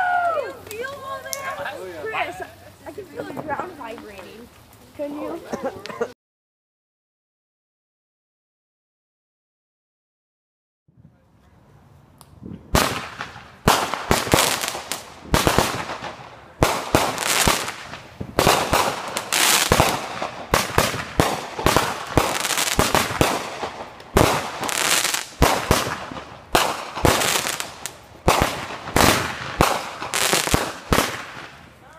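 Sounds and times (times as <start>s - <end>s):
fireworks crackling: 0.0s - 6.1s, 11.8s - 31.9s
fireworks bangs: 12.5s - 31.8s.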